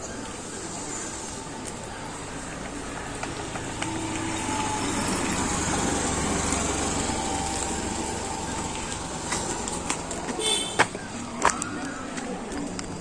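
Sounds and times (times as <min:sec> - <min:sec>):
vehicle engine passing by: 0:00.8 - 0:10.3.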